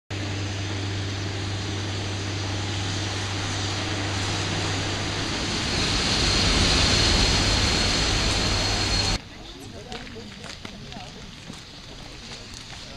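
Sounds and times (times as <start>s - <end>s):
steam train rumbling and hissing: 0.1s - 12.9s
high steady squeal: 0.3s - 9.2s.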